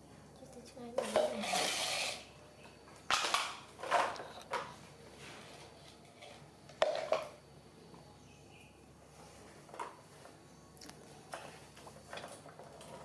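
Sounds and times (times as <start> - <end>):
plastic toys scraping on tiled floor: 0.9 - 2.4, 3.1 - 7.3, 11.3 - 13.0.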